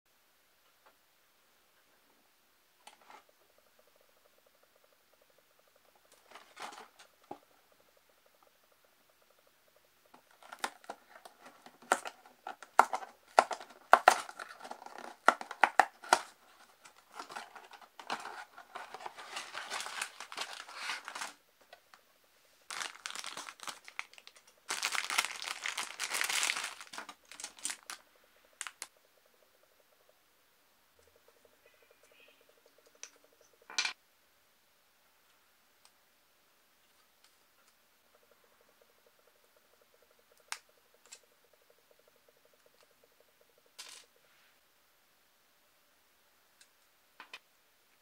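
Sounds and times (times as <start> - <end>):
plastic packaging crinkling and tearing: 17.0 - 21.4, 22.7 - 28.0.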